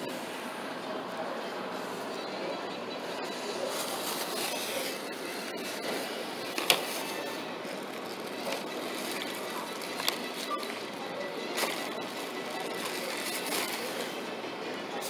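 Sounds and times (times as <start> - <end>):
shopping cart rattling: 6.5 - 14.2.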